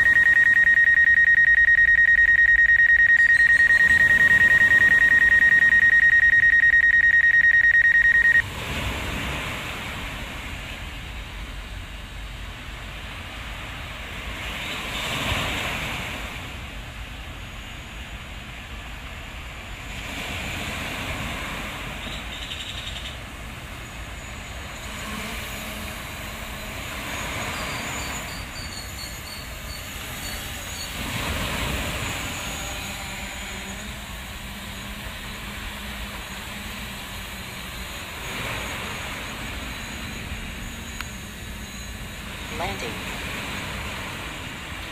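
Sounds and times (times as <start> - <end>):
electronic alarm beeping: 0.0 - 8.4, 26.5 - 36.8, 37.7 - 43.0
rushing outdoor noise: 0.0 - 44.9.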